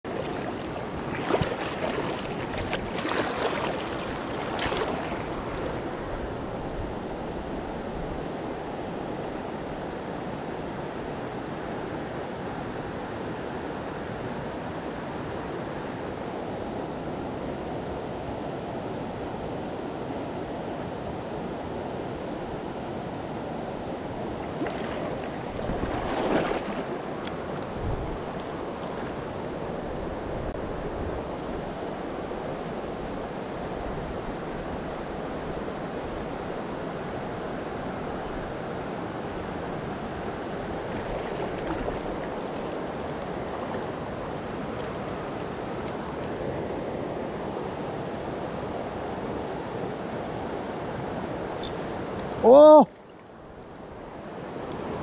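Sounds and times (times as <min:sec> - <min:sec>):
louder rush of water: 0:00.0 - 0:06.3, 0:24.2 - 0:29.8, 0:39.0 - 0:47.5, 0:52.3 - 0:52.9
river flowing over rocks: 0:34.3 - 0:48.9.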